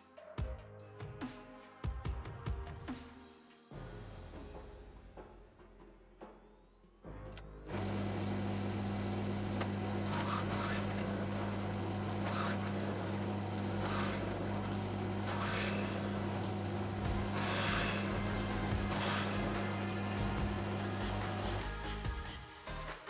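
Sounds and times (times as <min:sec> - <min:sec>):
drill press motor humming: 0:07.7 - 0:22.0
drill bit cutting metal: 0:07.8 - 0:21.7.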